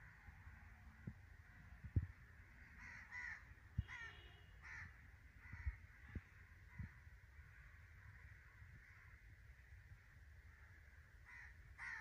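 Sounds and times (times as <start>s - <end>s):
crows cawing: 2.6s - 9.3s, 10.5s - 12.0s.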